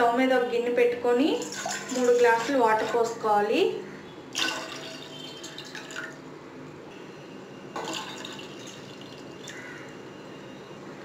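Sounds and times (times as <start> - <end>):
water pouring into metal pot: 1.4 - 2.9, 4.4 - 6.1, 7.8 - 9.6.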